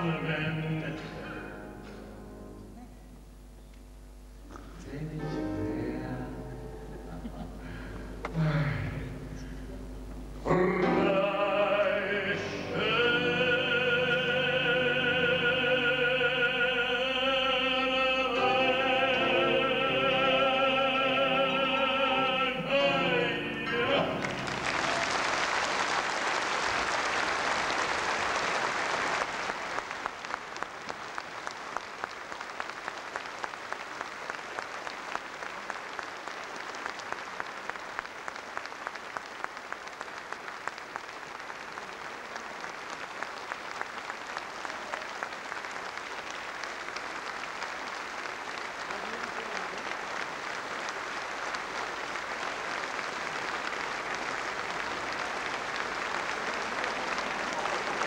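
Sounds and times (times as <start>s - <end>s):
audience applauding: 24.0s - 58.0s.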